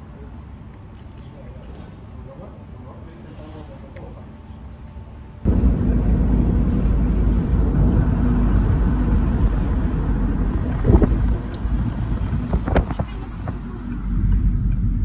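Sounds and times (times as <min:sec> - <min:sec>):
road and wind noise in car: 0:05.4 - 0:15.0.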